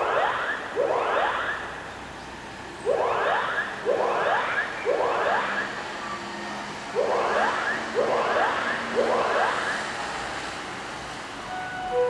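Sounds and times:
fire alarm whooping tones: 0.0s - 1.8s, 2.8s - 10.0s.

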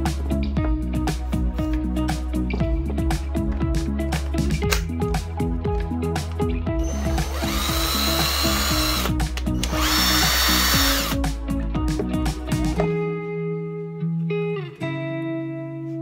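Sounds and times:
guitar music: 0.0s - 16.0s
impact driver motor whirring: 6.8s - 11.2s.

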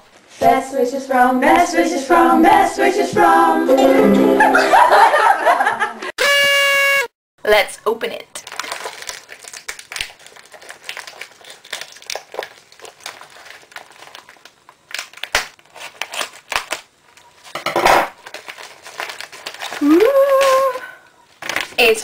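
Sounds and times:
paper envelope crinkling: 8.4s - 22.0s
person saying ooh: 19.8s - 21.0s.

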